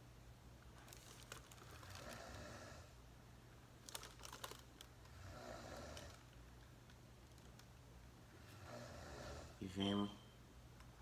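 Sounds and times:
soft breath: 1.6s - 3.1s, 8.3s - 9.6s.

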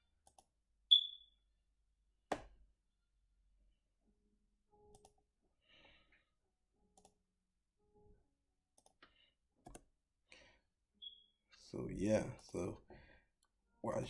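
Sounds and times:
faint mouse clicks: 4.9s - 5.2s, 8.8s - 9.9s.

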